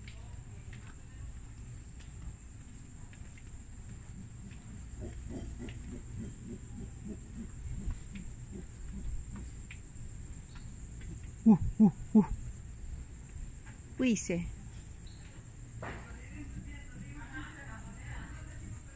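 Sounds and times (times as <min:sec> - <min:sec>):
insect chorus: 0:00.0 - 0:18.9
faint low repeated calls: 0:10.6 - 0:12.8.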